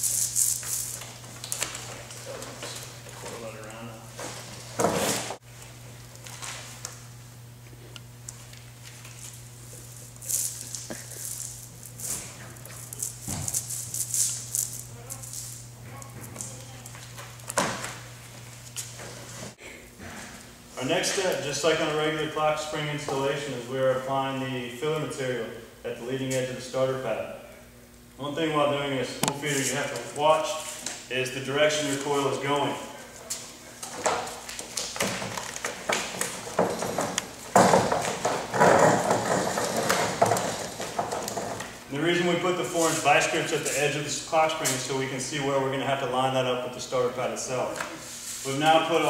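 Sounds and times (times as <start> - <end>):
steady low hum: 0.0 - 49.0
rustling of sheet material: 42.4 - 44.0.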